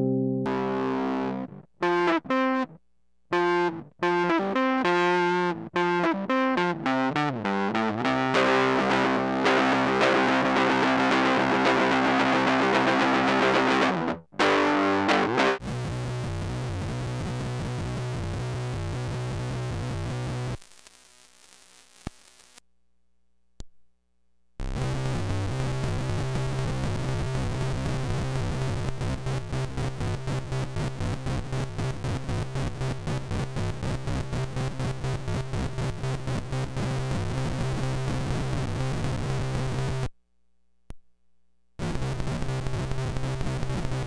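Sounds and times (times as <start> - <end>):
harsh stuttering guitar pedal buzz: 0.0 - 2.7, 3.4 - 20.6, 41.8 - 44.0.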